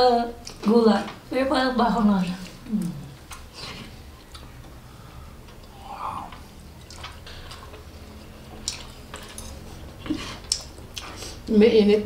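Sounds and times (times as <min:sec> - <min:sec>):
low steady hum: 0:00.0 - 0:12.0
people chewing: 0:02.2 - 0:11.5.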